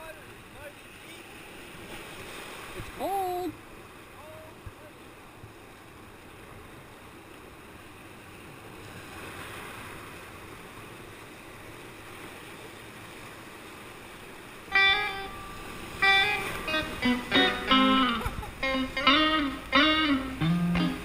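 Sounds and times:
whitewater rapids rushing: 0:00.0 - 0:05.7
plucked guitar music: 0:14.7 - 0:21.0.

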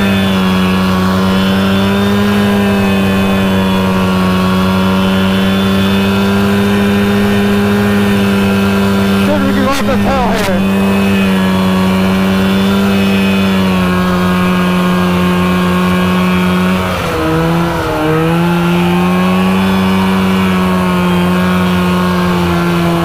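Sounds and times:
two-stroke engine running: 0:00.0 - 0:23.0.

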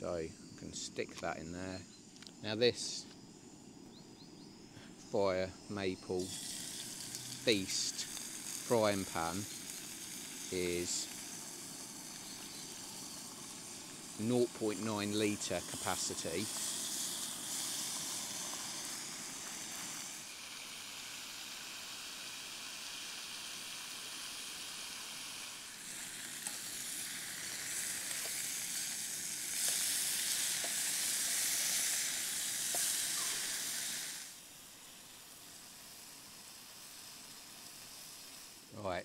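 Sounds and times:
bacon sizzling in a frying pan: 0:06.2 - 0:38.8.

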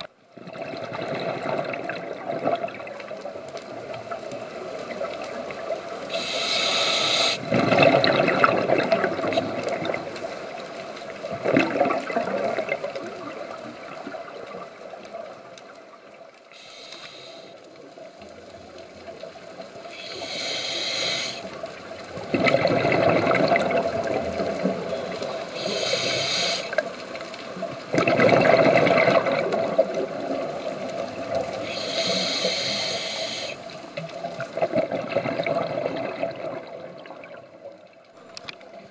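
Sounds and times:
exhaled bubbles rushing: 0:00.4 - 0:05.7, 0:07.3 - 0:10.6, 0:11.2 - 0:14.7, 0:22.0 - 0:25.6, 0:27.6 - 0:31.7, 0:34.2 - 0:37.5
scuba regulator inhale hiss: 0:06.1 - 0:07.5, 0:16.5 - 0:17.6, 0:19.9 - 0:21.6, 0:25.5 - 0:26.8, 0:31.6 - 0:33.7.

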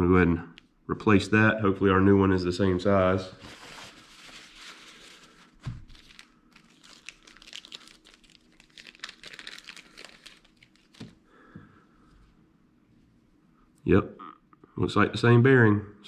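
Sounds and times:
packet crinkling: 0:03.3 - 0:11.2.

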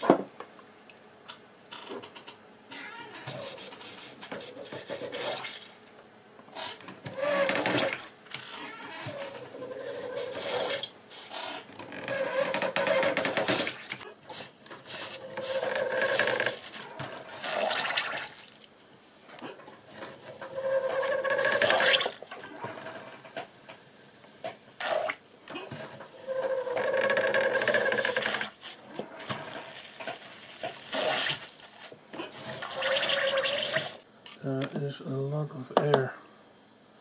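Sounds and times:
pedal mechanism squeaking: 0:06.5 - 0:13.7
syringes squirting liquid with a hiss: 0:29.6 - 0:34.0.

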